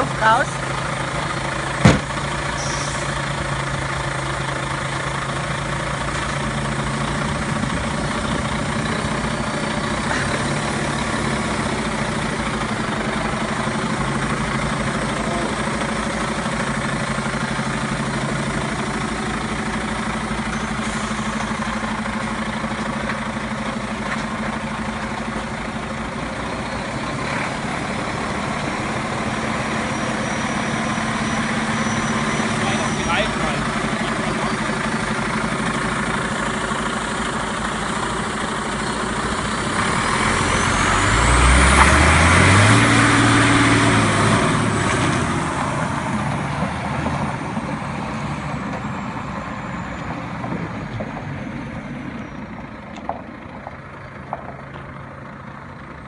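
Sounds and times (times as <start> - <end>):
diesel engine idling: 0.0 - 56.0
sharp knock: 1.8 - 2.2.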